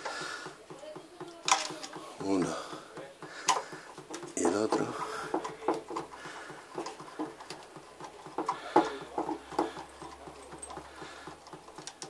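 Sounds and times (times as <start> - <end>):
metal tools clicking and knocking: 1.2 - 2.0, 3.5 - 12.0.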